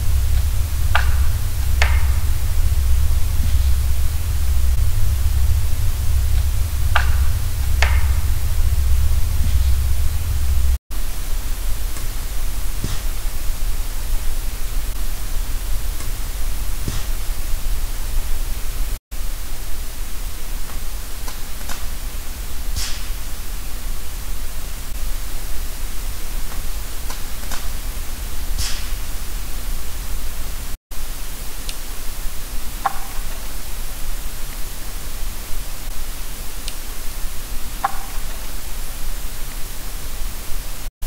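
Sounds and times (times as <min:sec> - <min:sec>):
steady recorder hiss: 0:00.0 - 0:40.9.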